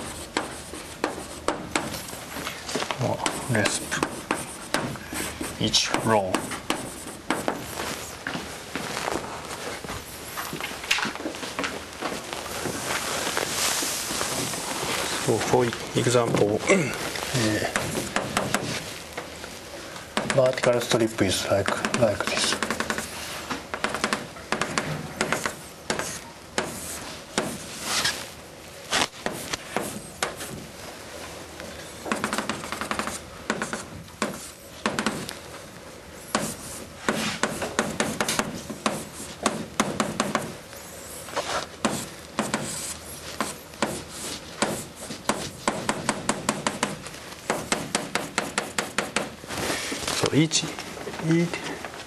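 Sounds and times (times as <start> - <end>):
chalk scratching on blackboard: 0.0 - 2.0, 3.2 - 8.0, 25.2 - 28.2, 32.1 - 35.3, 36.3 - 46.0, 46.6 - 49.3.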